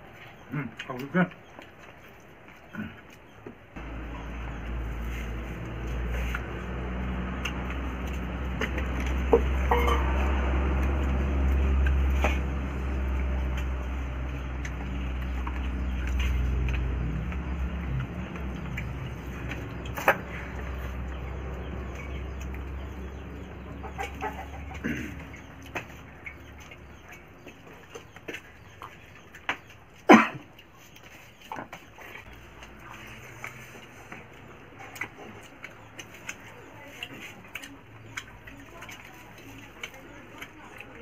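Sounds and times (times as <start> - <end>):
people eating and chewing: 0.0 - 41.0
low steady rumble: 3.8 - 27.7.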